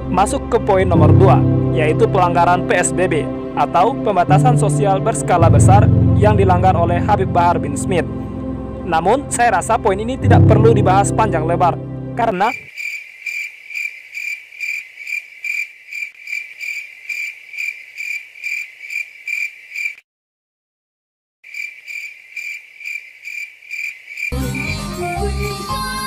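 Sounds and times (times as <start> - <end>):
music: 0.0 - 12.3, 24.3 - 26.0
cricket chirping: 12.4 - 20.0, 21.5 - 24.4.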